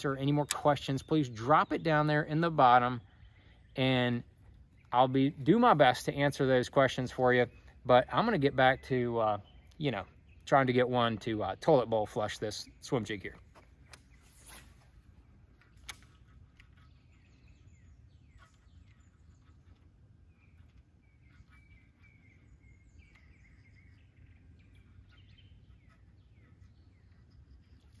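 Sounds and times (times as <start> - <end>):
faint bird chirps: 0.0 - 28.0
sharp click: 15.8 - 16.7.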